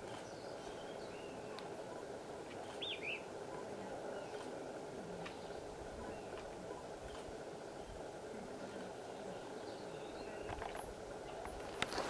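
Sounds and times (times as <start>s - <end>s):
low background rush: 0.0s - 12.0s
high bird chirps: 2.6s - 3.3s.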